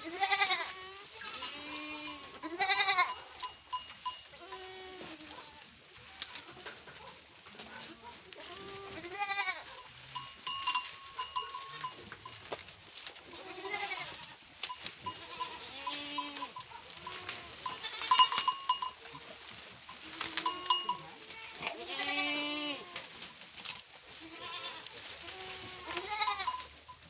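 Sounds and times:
goats bleating: 0.0 - 3.5, 4.3 - 6.9, 8.2 - 9.7, 10.8 - 12.1, 13.2 - 14.4, 15.0 - 23.2, 24.2 - 26.7
goats crunching leaves: 0.0 - 27.0.

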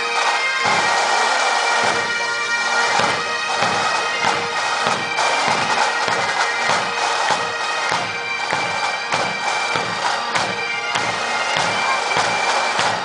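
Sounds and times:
bagpipe drones: 0.0 - 13.0
bagpipes playing a tune: 0.0 - 13.0
bass and side drums beating: 2.8 - 13.0.

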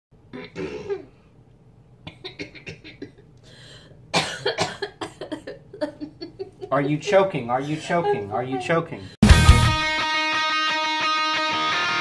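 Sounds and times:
person coughing and spluttering: 0.3 - 1.2, 2.1 - 3.3, 4.1 - 5.7.

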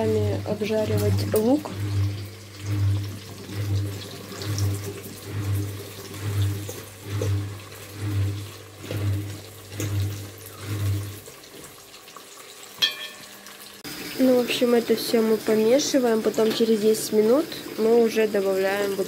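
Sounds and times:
onions sizzling in hot oil: 8.6 - 19.0.

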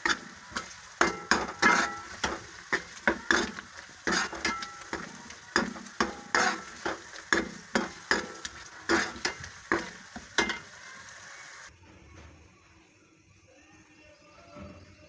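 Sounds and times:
metal ladle scraping pan: 0.0 - 11.2
frying sizzle: 0.0 - 11.8.

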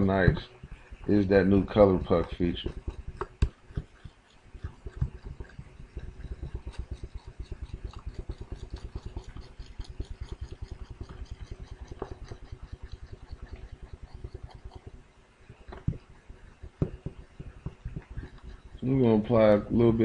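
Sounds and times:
stylus scribbling on drawing tablet: 0.0 - 19.6.

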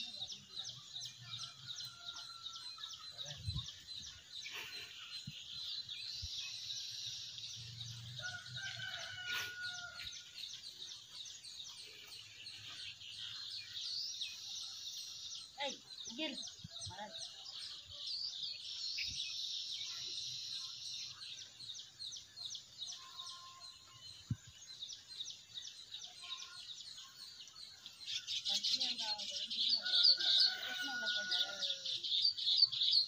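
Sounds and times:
rooster crowing: 8.2 - 10.2, 29.8 - 31.9.

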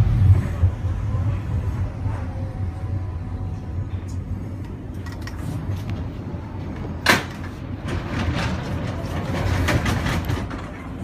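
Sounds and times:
suspension railway car rumble: 0.0 - 11.0
rattling clatter: 7.0 - 11.0.

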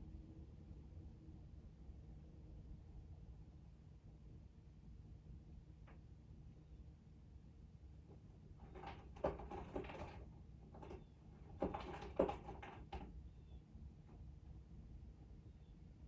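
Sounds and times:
low steady hum: 0.0 - 16.0
knocks and clatters: 8.6 - 13.1.

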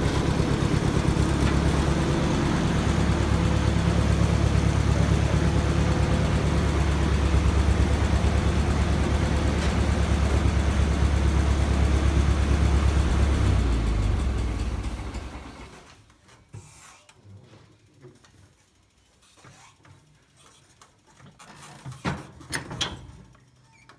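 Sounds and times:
tractor engine running: 0.0 - 15.9.

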